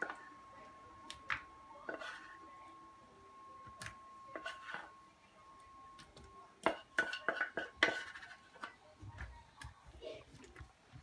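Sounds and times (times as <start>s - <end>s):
spatula scraping a saucepan: 1.8s - 2.5s, 4.3s - 5.0s, 6.6s - 8.8s.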